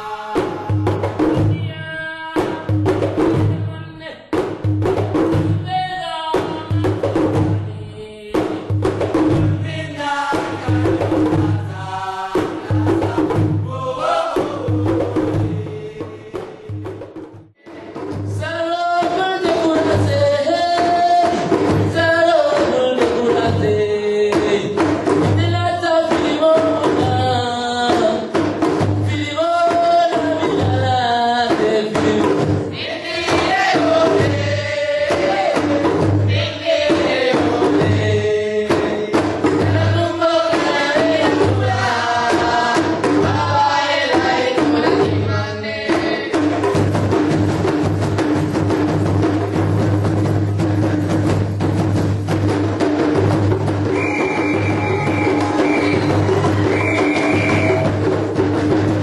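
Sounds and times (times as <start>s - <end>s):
voices singing together: 0.0s - 4.2s, 5.6s - 28.4s, 29.1s - 46.7s, 53.8s - 58.1s
hand drums: 0.0s - 59.0s
low drum beat: 46.7s - 59.0s.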